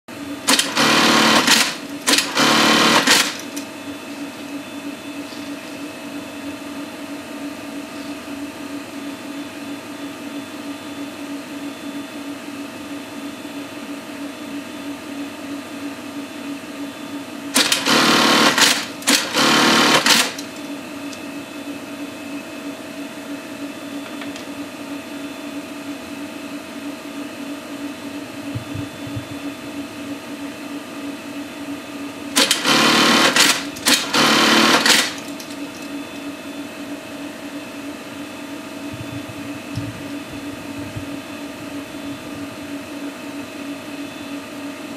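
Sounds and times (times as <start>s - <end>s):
sewing machine stitching: 0.5s - 3.6s, 17.6s - 20.5s, 32.4s - 35.4s
steady hum: 17.1s - 44.4s.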